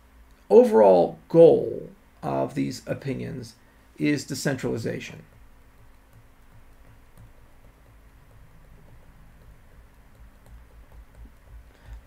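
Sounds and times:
low steady hum: 0.0s - 12.0s
faint ticks: 5.2s - 12.0s.

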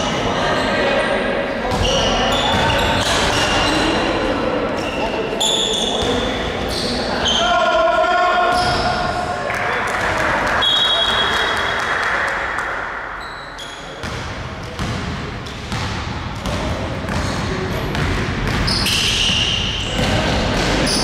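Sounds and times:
sneakers squeaking: 1.6s - 7.7s, 8.5s - 9.2s, 13.2s - 21.0s.

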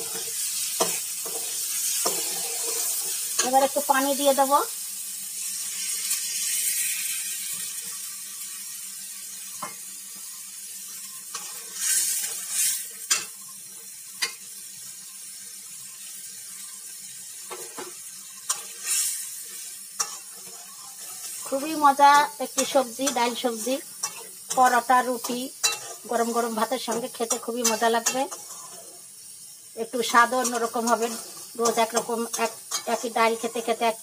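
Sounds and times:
metal spatula scraping a pan: 0.0s - 3.9s, 11.3s - 13.4s, 17.4s - 29.1s, 30.1s - 33.6s
vegetables sizzling in a pan: 0.0s - 34.0s
water hissing in hot oil: 0.0s - 34.0s.

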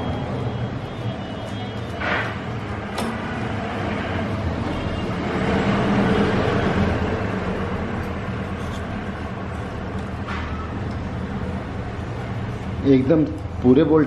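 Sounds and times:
traffic rumble: 0.0s - 14.0s
vehicle passing: 2.0s - 9.5s.

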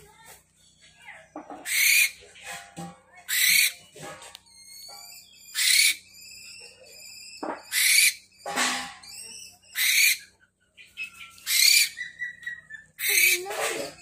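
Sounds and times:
owl screeching: 1.6s - 2.2s, 3.3s - 3.8s, 4.5s - 8.3s, 9.0s - 10.3s, 11.2s - 14.0s.

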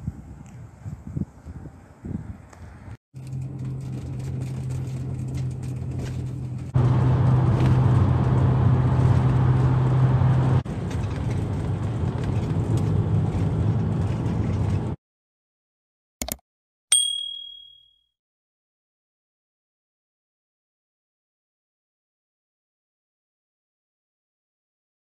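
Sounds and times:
bus engine and road noise: 0.0s - 15.0s.

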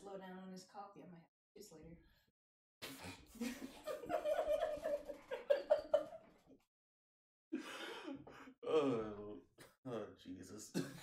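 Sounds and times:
people giggling and laughing: 3.3s - 6.5s.

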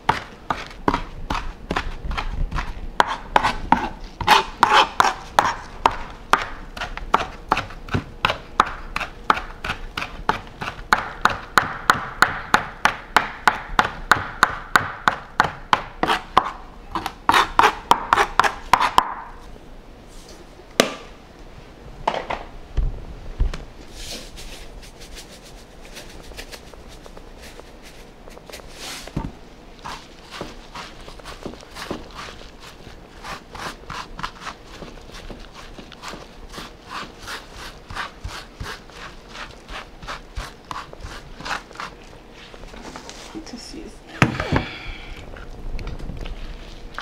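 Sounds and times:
knife chopping on plastic board: 0.0s - 19.3s.

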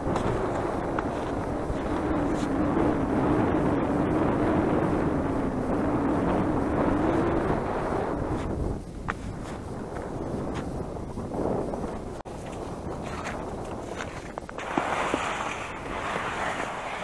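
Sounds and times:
rushing noise: 14.6s - 17.0s.

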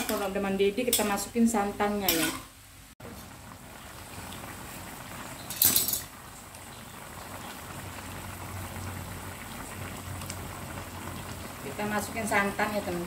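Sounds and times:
stew bubbling in a wok: 0.0s - 13.0s.

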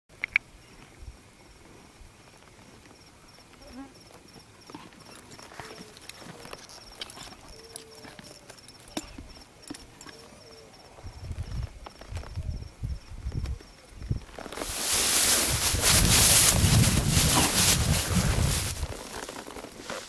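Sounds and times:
insect chirping: 0.2s - 19.0s
horse hooves clip-clopping: 1.6s - 10.6s, 13.6s - 20.0s.

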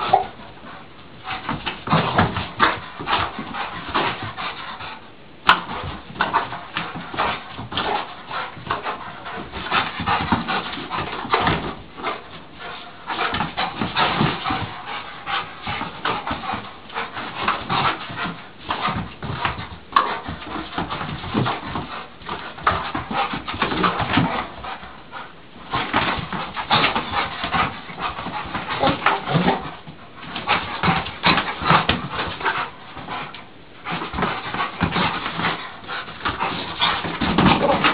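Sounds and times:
dog whimpering and panting: 0.0s - 4.9s, 5.7s - 37.9s.

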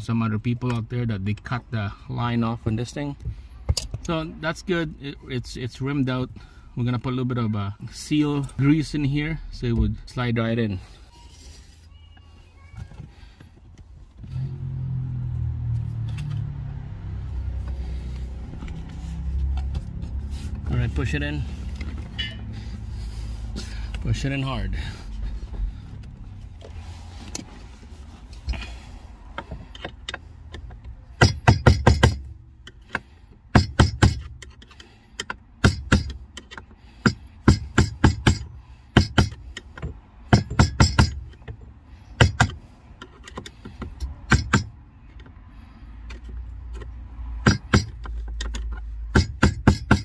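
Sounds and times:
screwdriver tapping metal: 31.2s - 32.3s, 33.5s - 39.4s, 40.3s - 41.3s, 43.3s - 44.7s, 47.4s - 50.0s.

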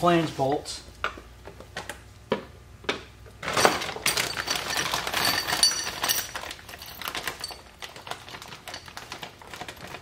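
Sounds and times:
metal bolts clicking and rattling: 3.4s - 7.6s
plastic bag crinkling: 4.2s - 10.0s.

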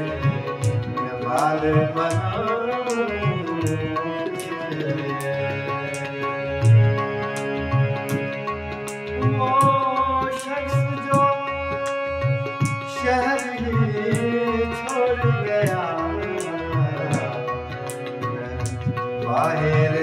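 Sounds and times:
harmonium playing chords and melody: 0.0s - 20.0s
tabla beat: 0.0s - 20.0s.

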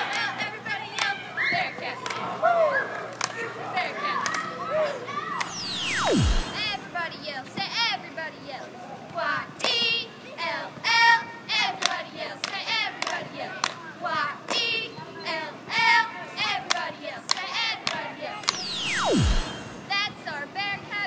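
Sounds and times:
hand claps: 11.8s - 13.8s.

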